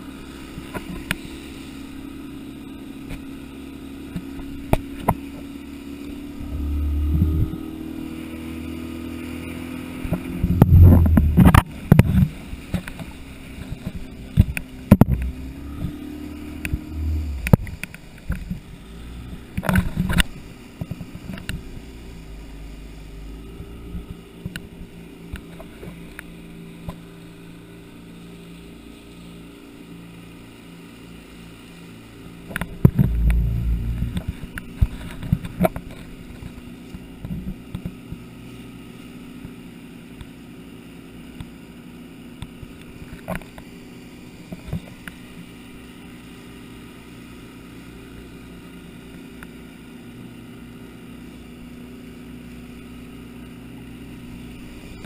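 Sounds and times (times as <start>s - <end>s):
speedboat motor running: 0.0s - 55.0s
water rushing past hull: 4.0s - 36.5s.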